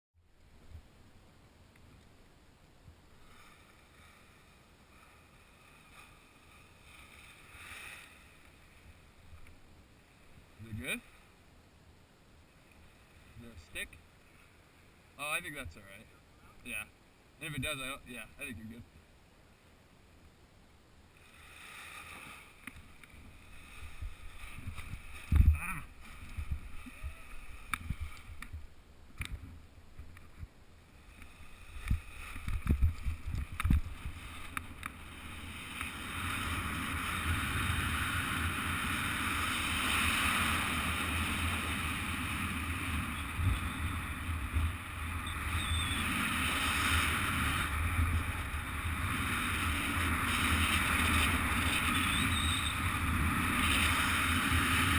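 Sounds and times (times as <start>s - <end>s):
wind rushing over microphone: 23.2s - 30.5s, 31.5s - 54.9s.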